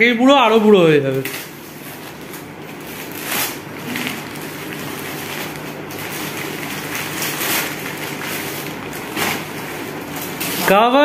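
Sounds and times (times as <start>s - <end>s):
gift wrapping crinkling: 1.0s - 11.0s.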